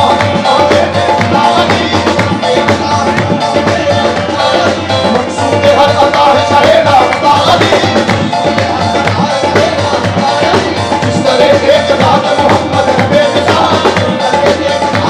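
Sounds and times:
harmonium: 0.0 - 15.0
rhythmic hand-clapping: 0.0 - 15.0
tabla: 0.0 - 15.0
voices singing: 0.0 - 15.0.

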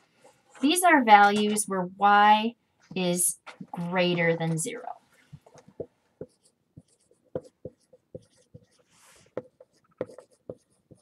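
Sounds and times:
marker writing on a whiteboard: 2.9 - 11.0.

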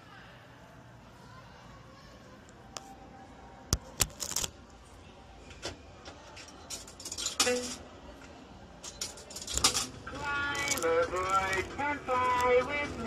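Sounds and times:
faint voice-like sound: 0.0 - 3.9
clicks and rattles: 6.4 - 7.8, 8.8 - 12.6.

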